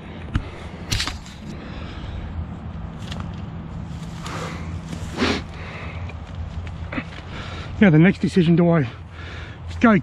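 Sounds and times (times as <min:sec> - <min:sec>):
footsteps on grassy muddy path: 0:02.6 - 0:10.0.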